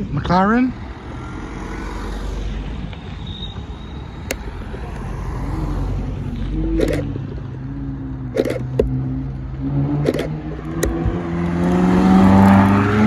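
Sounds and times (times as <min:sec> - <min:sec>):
cars driving slowly past: 0:00.0 - 0:13.0
sports car engine approaching: 0:04.6 - 0:13.0.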